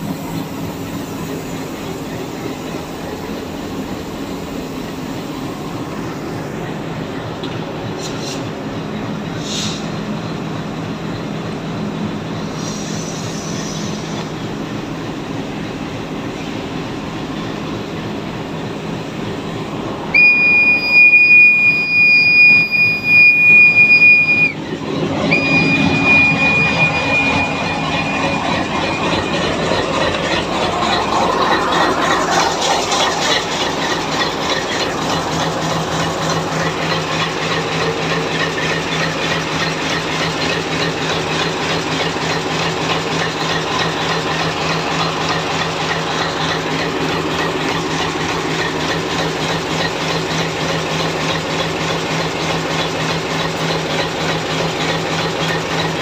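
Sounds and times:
diesel locomotive engine idling: 0.0s - 56.0s
high-pitched warning buzzer: 25.4s - 29.2s.

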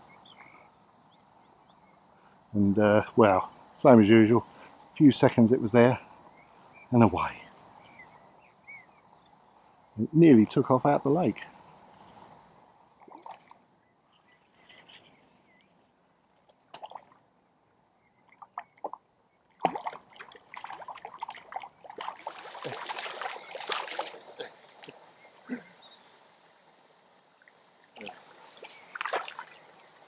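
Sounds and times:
fish splashing at water surface: 19.6s - 25.0s, 28.0s - 29.8s.

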